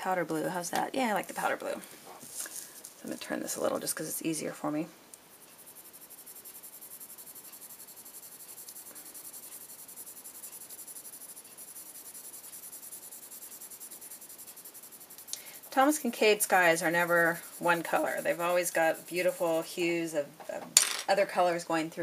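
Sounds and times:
colored pencil scratching on paper: 5.3s - 19.8s.

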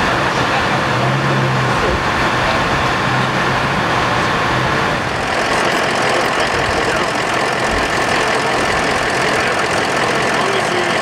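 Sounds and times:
vehicle engine idling: 3.3s - 11.0s.

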